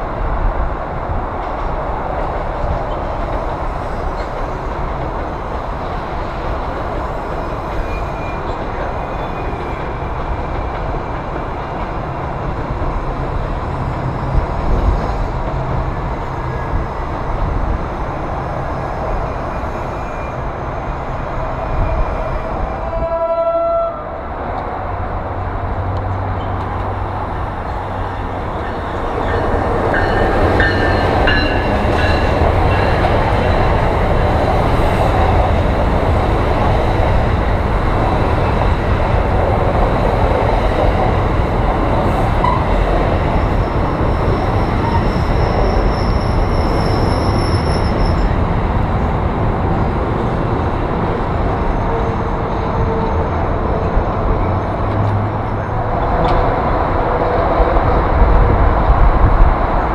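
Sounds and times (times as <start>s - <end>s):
train wheels rumbling on rails: 0.0s - 59.9s
high wheel squeal: 43.4s - 48.4s.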